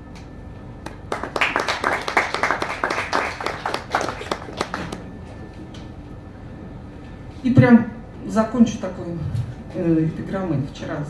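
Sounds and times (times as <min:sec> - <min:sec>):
audience clapping: 0:00.8 - 0:05.1.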